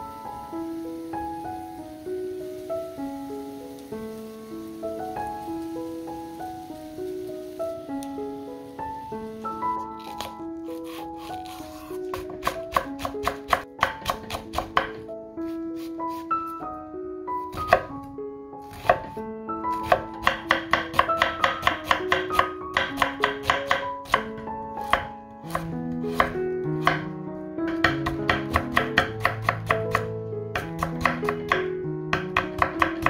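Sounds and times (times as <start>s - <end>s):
light instrumental music: 0.0s - 33.0s
knife chopping on wooden board: 10.0s - 15.0s, 17.5s - 17.9s, 18.7s - 19.1s, 19.8s - 27.0s, 27.7s - 33.0s.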